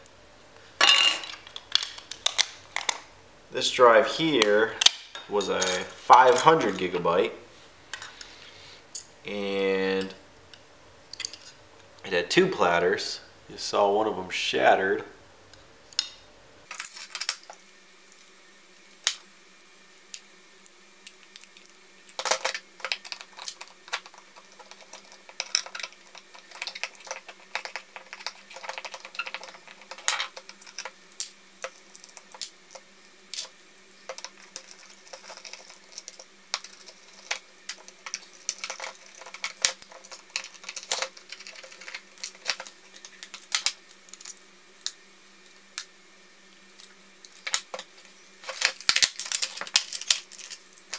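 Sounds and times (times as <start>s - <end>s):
faint steady hum: 0.0s - 50.9s
glass shards set down: 0.8s - 2.4s, 16.0s - 17.3s
metal parts clinking on wooden table: 0.8s - 3.0s, 4.8s - 7.0s, 24.6s - 30.9s.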